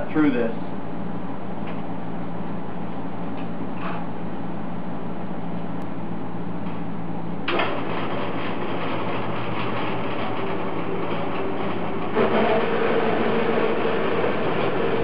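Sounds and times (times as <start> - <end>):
bandsaw motor hum: 7.4 - 15.0.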